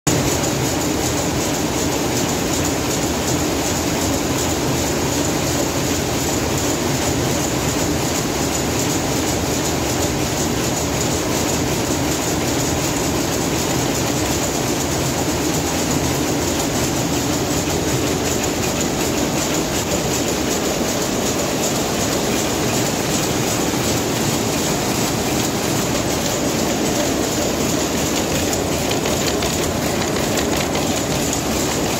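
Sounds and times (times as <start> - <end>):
weaving looms clattering: 0.1 - 31.9.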